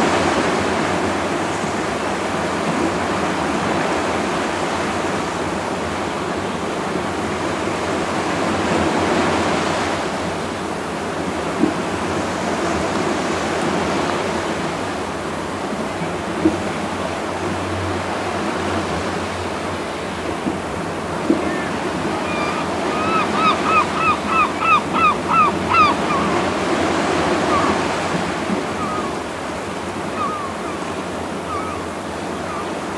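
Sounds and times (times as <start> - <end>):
sea surf washing: 0.0 - 32.9
bird calling falling notes: 21.5 - 26.4, 30.1 - 30.9, 31.5 - 32.7.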